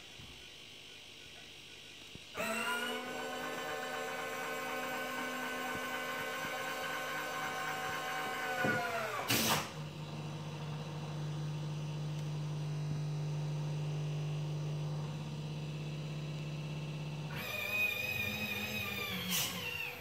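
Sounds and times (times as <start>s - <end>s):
small electric motor whining: 2.4s - 10.2s, 17.0s - 20.0s
steady low hum: 3.3s - 20.0s.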